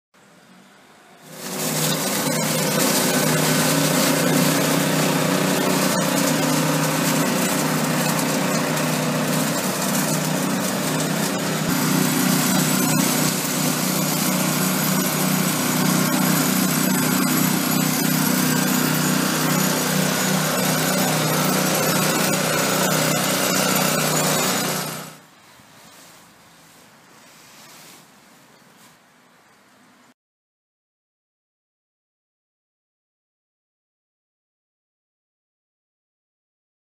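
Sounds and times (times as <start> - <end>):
leaf vacuum running: 1.2 - 25.2.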